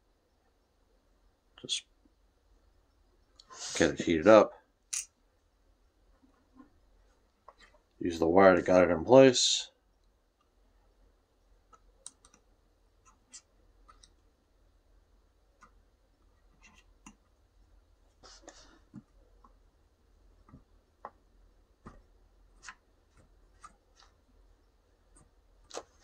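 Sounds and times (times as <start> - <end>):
small clicks and taps: 11.7 - 14.2.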